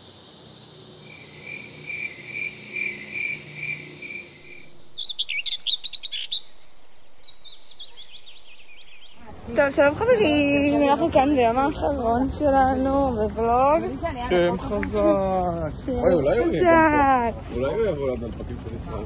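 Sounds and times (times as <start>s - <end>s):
repeating chirping call: 0.0s - 10.8s
birds singing high falling notes: 0.8s - 10.8s.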